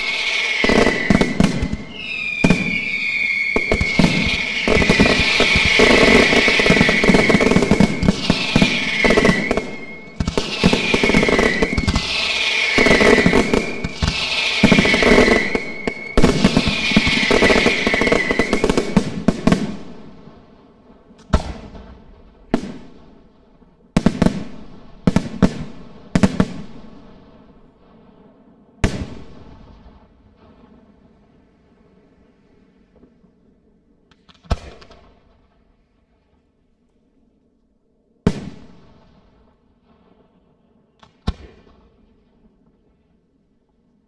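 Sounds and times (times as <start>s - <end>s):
firework shells bursting: 0.0s - 19.0s.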